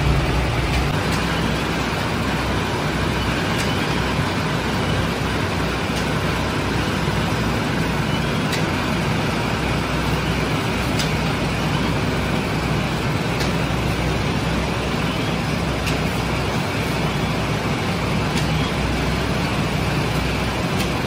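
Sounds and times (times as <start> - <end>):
low hum: 0.0 - 2.0
oven burner blower roar: 0.0 - 21.0.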